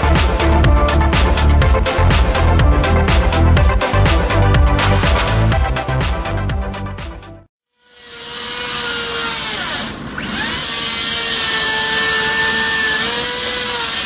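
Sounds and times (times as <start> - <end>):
electric chainsaw cutting wood: 7.7 - 14.0.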